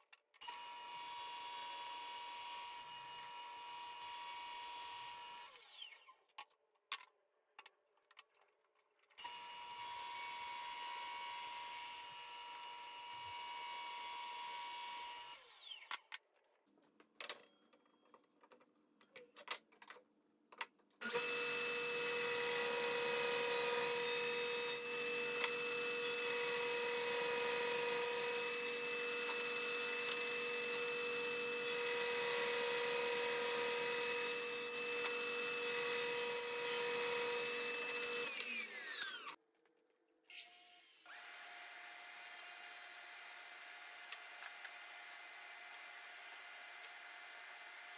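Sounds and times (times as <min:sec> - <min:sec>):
louder low-toned power tool: 0:21.0 - 0:39.4
power tool running: 0:21.0 - 0:39.4.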